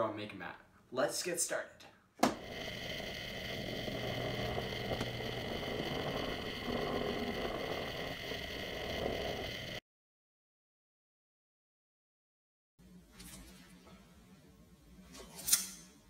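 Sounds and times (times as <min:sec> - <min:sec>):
small electric motor whine: 0:02.3 - 0:09.8.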